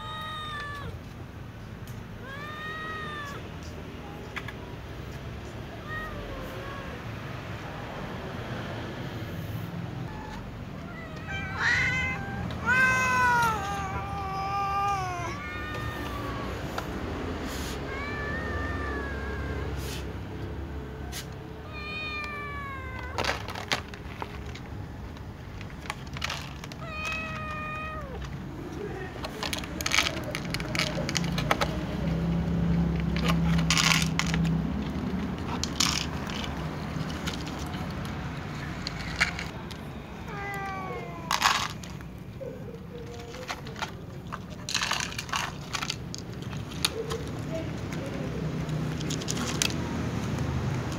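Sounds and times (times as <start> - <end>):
cats meowing: 0.0 - 4.5, 5.1 - 7.9, 9.4 - 24.5, 26.2 - 31.2, 39.2 - 45.9
food clicking and rattling: 29.1 - 39.8, 43.0 - 50.9.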